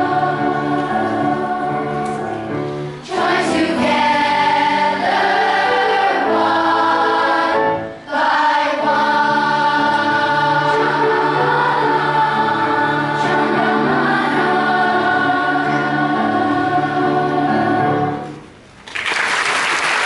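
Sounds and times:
children's choir singing: 0:00.0 - 0:18.5
audience applause: 0:18.8 - 0:20.0.

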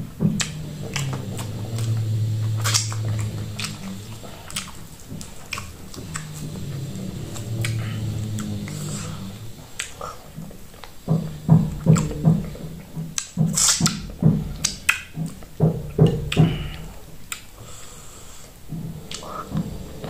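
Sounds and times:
woman humming: 0:00.4 - 0:09.9.

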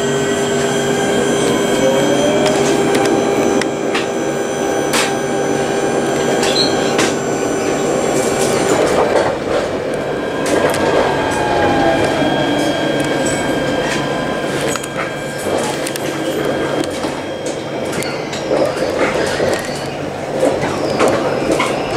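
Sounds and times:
tram electric drive whine: 0:00.0 - 0:21.9
wheel and rail rumble: 0:00.0 - 0:21.9.

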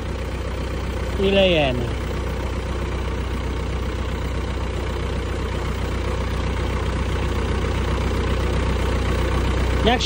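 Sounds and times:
tractor diesel engine idling: 0:00.0 - 0:10.0.

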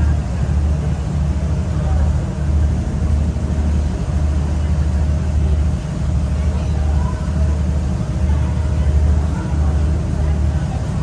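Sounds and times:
ferry engine rumble: 0:00.0 - 0:11.0.

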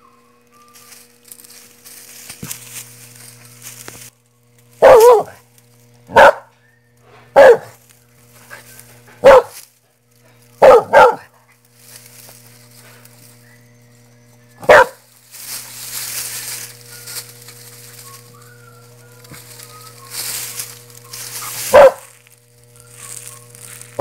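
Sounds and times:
dog barking: 0:04.8 - 0:05.4, 0:06.1 - 0:06.6, 0:07.3 - 0:07.8, 0:09.2 - 0:09.6, 0:10.5 - 0:11.4, 0:14.6 - 0:15.1, 0:21.4 - 0:22.2
hissing rustling noise: 0:19.2 - 0:24.0.

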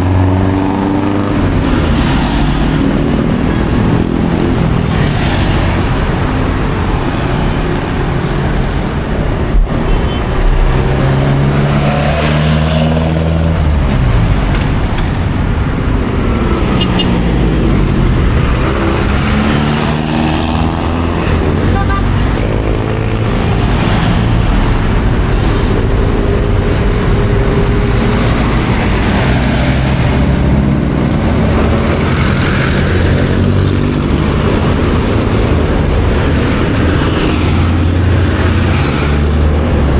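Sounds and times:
car and truck engines passing: 0:00.0 - 0:39.9
steady roar of traffic: 0:00.0 - 0:39.9.

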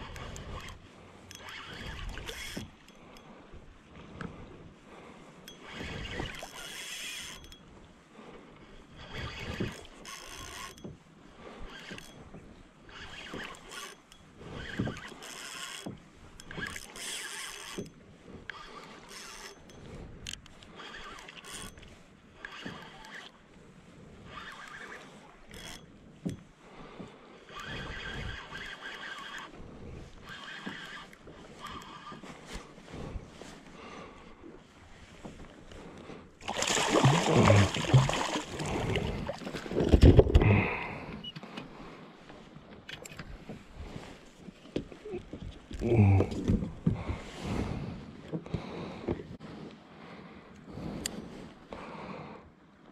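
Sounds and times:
spinning reel being wound: 0:00.0 - 0:02.7, 0:05.5 - 0:07.6, 0:09.1 - 0:10.8, 0:12.9 - 0:17.8, 0:27.5 - 0:29.5
water lapping at hull: 0:00.0 - 0:52.9
fish splashing: 0:36.4 - 0:40.0.

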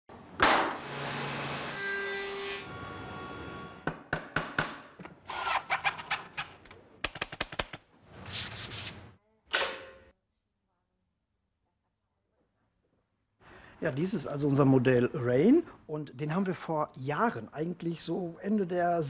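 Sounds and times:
hammer tapping wooden dowel: 0:03.9 - 0:04.8.

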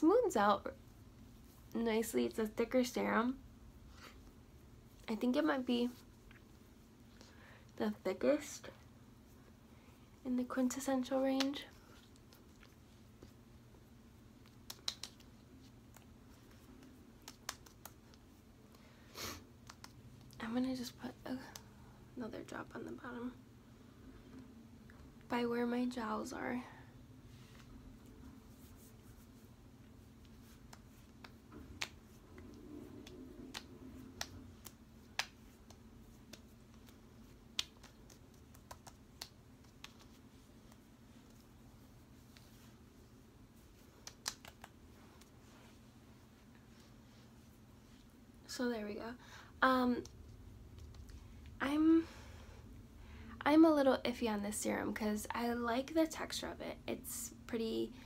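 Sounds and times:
fingertips tapping skin: 0:14.4 - 0:18.3, 0:19.6 - 0:20.4, 0:30.2 - 0:41.4, 0:43.8 - 0:45.3.

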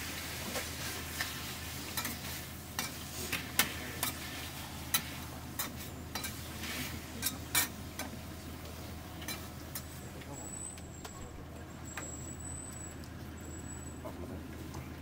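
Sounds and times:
light sizzle: 0:00.0 - 0:10.3
utensils tapping a pan: 0:04.9 - 0:06.4.

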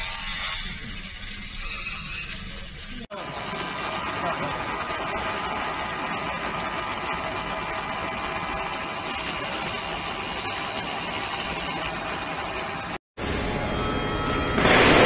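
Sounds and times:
laser machine hum and hiss: 0:12.6 - 0:15.0.

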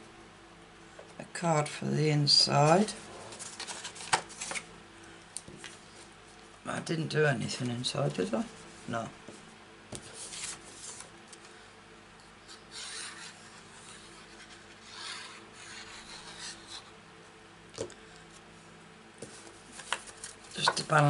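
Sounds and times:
faint steady hum: 0:00.0 - 0:21.0
cardstock sliding and rubbing: 0:10.0 - 0:11.1.

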